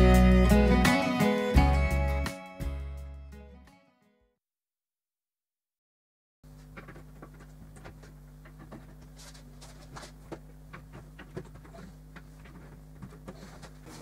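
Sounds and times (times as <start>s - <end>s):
steady low hum: 6.5s - 14.0s.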